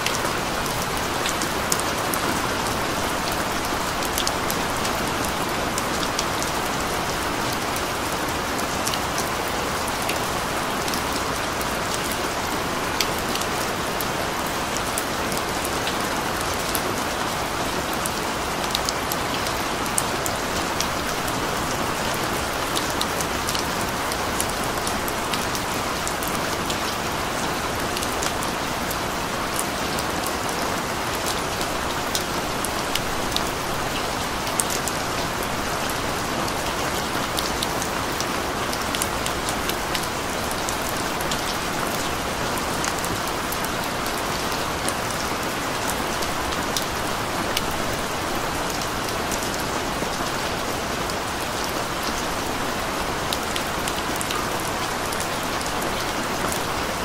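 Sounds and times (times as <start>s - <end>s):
steady rain falling: 0.0s - 57.0s.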